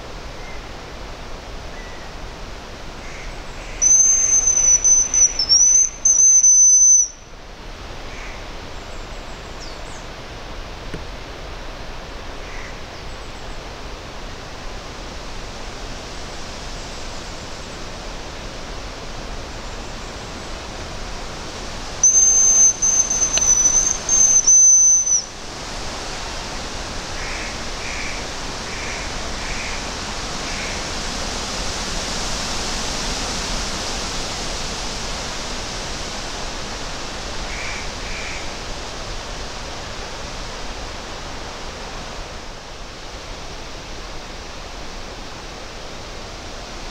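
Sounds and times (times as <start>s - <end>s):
wind hissing through trees: 0.0s - 46.9s
high thin decoy whistle: 3.8s - 7.2s, 22.0s - 25.3s.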